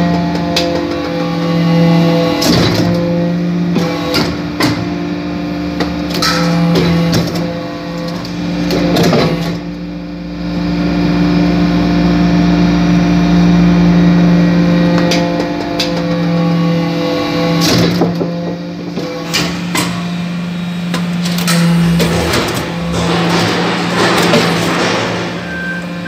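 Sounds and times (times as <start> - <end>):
hydraulic press humming: 0.0 - 26.0
sharp clicks and knocks: 20.9 - 26.0.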